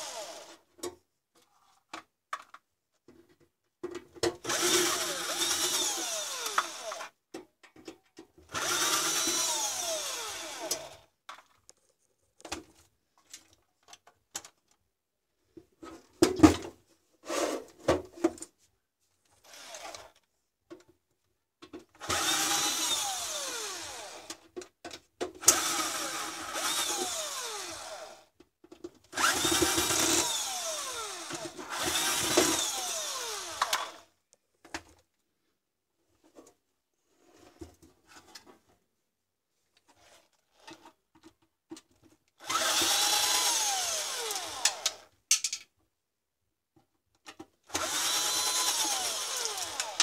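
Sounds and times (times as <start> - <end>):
electric drill-driver whining: 0.0 - 0.6, 4.5 - 7.1, 8.5 - 11.1, 19.5 - 20.1, 22.0 - 24.4, 25.4 - 28.3, 29.2 - 34.1, 42.4 - 45.1, 47.7 - 50.0
screws and tools clicking: 4.5 - 7.1, 42.5 - 45.6, 47.7 - 50.0.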